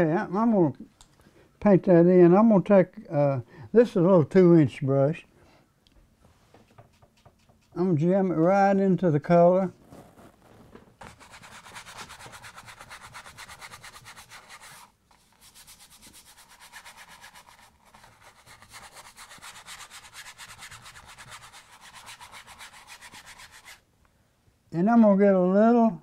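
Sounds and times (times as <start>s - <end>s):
paintbrush scrubbing on canvas: 6.4s - 7.8s, 11.0s - 23.8s.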